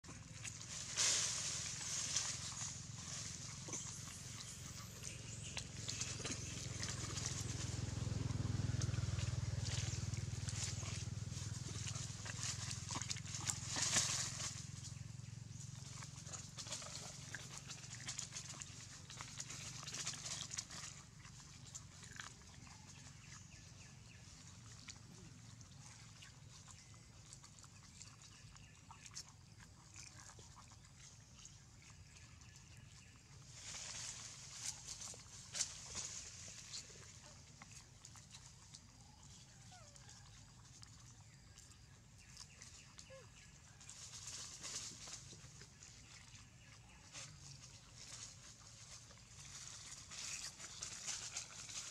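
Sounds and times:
low rumble: 0.0s - 12.8s
rustling leaves: 0.0s - 25.4s, 33.3s - 39.6s, 42.2s - 51.9s
monkey sounds: 33.9s - 48.3s.

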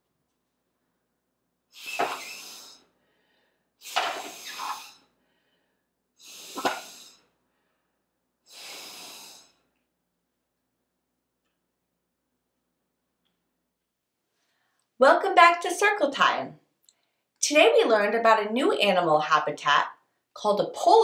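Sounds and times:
breath puffs through straw: 1.7s - 2.8s, 8.5s - 9.5s.

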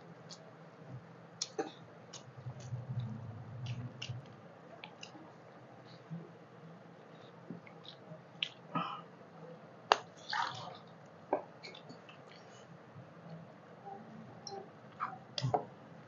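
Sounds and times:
wet eating sounds: 9.9s - 11.0s.

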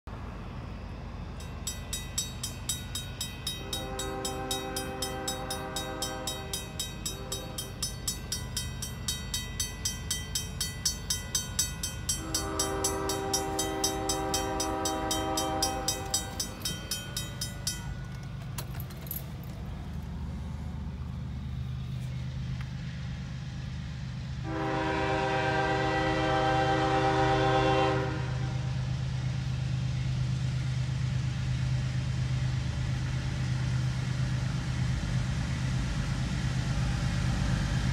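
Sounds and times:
railroad crossing bells ringing: 0.1s - 22.5s
low engine rumble: 0.1s - 27.1s
locomotive horn blasts: 3.5s - 8.0s, 12.1s - 16.6s, 24.4s - 28.8s.

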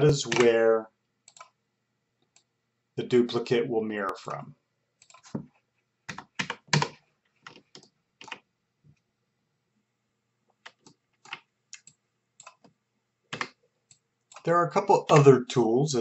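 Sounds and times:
keyboard typing: 0.0s - 0.6s, 1.3s - 1.6s, 5.0s - 5.5s, 6.1s - 8.5s, 10.6s - 12.7s, 13.3s - 13.6s, 14.3s - 15.4s.

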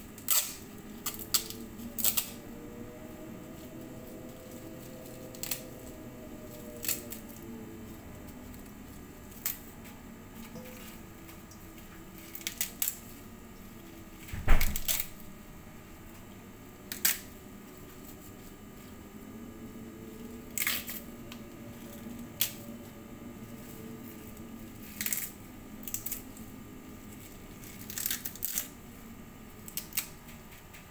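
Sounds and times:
kale leaves tearing: 0.2s - 2.4s, 3.6s - 7.5s, 12.1s - 13.3s, 14.6s - 15.2s, 16.9s - 18.5s, 20.4s - 21.1s, 23.5s - 28.8s, 29.6s - 30.2s.

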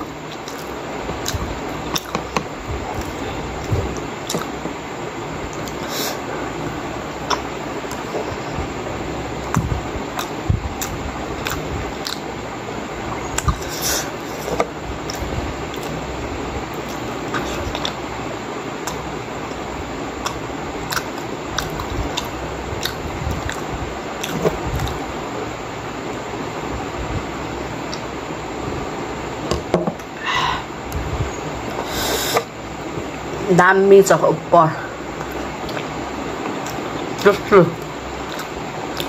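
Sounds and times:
steady background hiss: 0.0s - 39.0s
person chewing dumplings: 0.3s - 4.7s, 9.5s - 12.3s, 20.2s - 25.1s, 35.1s - 39.0s
wet mouth clicks and smacks: 9.5s - 12.2s, 18.8s - 19.0s, 20.2s - 23.6s, 35.2s - 37.2s, 38.3s - 39.0s.

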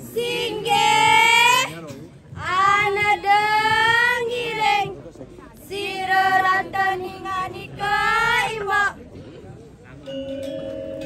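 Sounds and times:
woman singing a chant: 5.7s - 9.0s.

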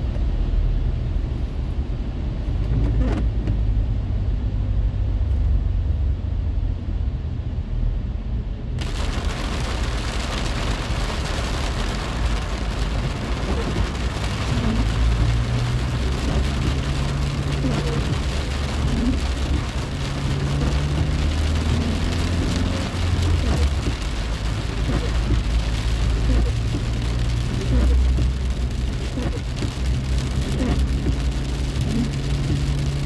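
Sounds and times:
low rumble of a car: 0.0s - 33.0s
rain pattering on a car: 8.8s - 33.0s.

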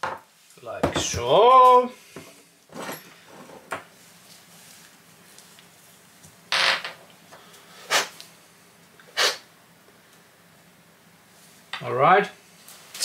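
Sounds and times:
low background hiss: 0.0s - 13.0s
breathy puffs of air: 7.4s - 8.2s.

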